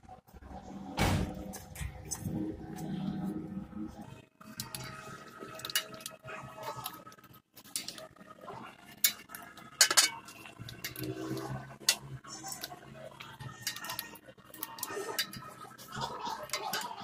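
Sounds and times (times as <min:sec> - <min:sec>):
metal tools clinking on steel bowl: 0:08.9 - 0:17.0.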